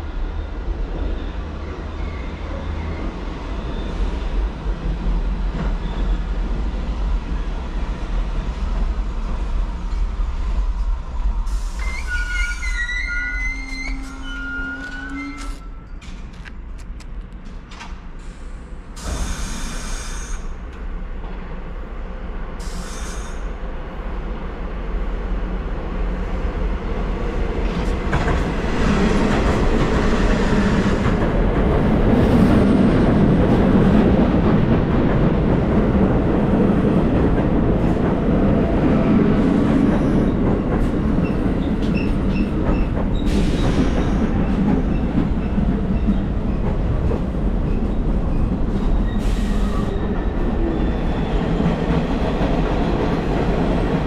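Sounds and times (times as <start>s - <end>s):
train rumbling on rails: 0.0s - 54.0s
high-pitched wheel squeals: 11.7s - 16.0s.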